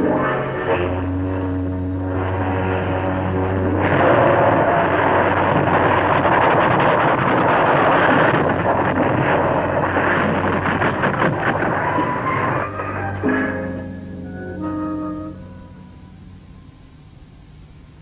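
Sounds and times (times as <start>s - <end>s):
loud rumbling crash: 0.0s - 14.1s
steady low drone: 0.0s - 18.0s.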